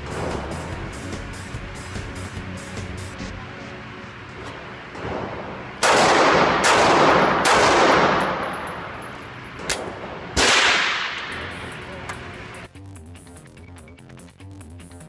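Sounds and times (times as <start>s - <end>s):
pistol shots ringing indoors: 4.5s - 11.9s.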